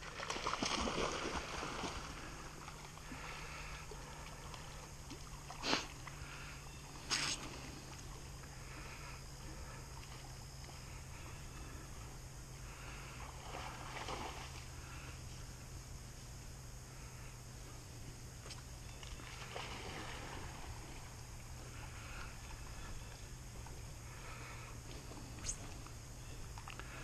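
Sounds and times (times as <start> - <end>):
dog splashing in water: 0.0 - 2.2.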